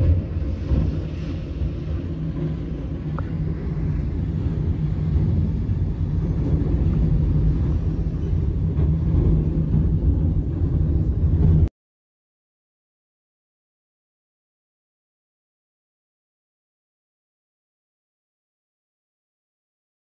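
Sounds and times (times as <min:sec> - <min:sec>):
vehicle road and wind noise: 0:00.0 - 0:11.7.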